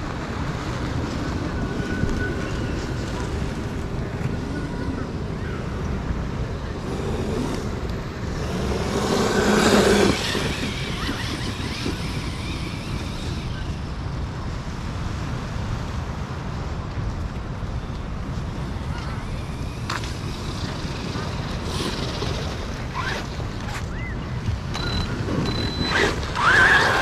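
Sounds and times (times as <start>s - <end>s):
rc truck motor whine: 6.0s - 14.1s, 18.8s - 24.1s, 24.7s - 27.0s
tyre noise: 6.4s - 13.7s.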